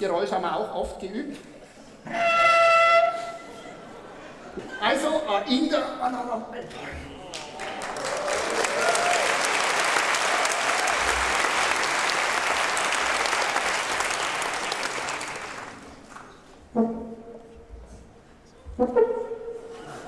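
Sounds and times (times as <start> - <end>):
audience applauding: 7.1 - 16.4.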